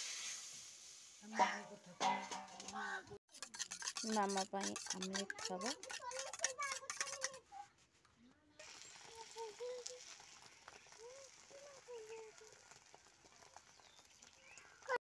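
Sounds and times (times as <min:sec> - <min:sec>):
egg sizzling on a hot pan: 0:00.0 - 0:01.4, 0:03.3 - 0:07.4, 0:08.6 - 0:15.0.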